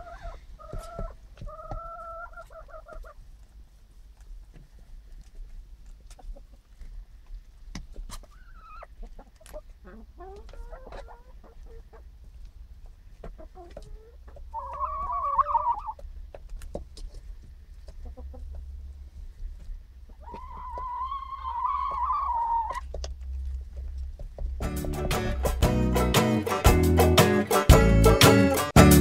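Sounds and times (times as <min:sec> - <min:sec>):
hens clucking: 0:00.0 - 0:03.6, 0:04.4 - 0:28.6
hen drawn-out call: 0:14.5 - 0:16.0, 0:20.2 - 0:22.8.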